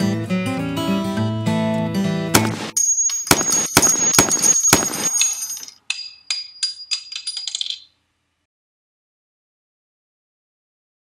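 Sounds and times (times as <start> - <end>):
brass casing bouncing on hard surface: 2.4 - 7.9
gunshots with ringing tail: 3.3 - 5.2.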